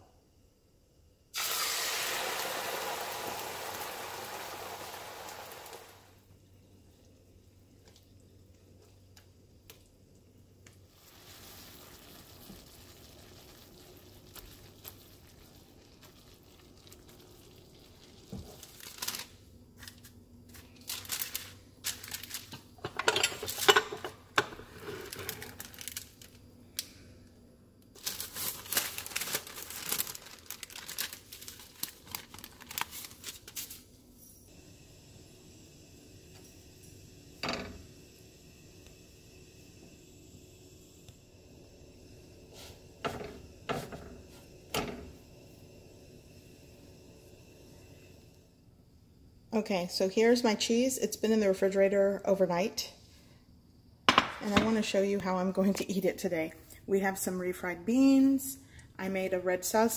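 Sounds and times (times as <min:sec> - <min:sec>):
beans sizzling in hot oil: 0:01.3 - 0:26.5, 0:34.5 - 0:48.4
plastic sheets crinkling: 0:18.0 - 0:22.8, 0:24.9 - 0:26.4, 0:28.0 - 0:33.9.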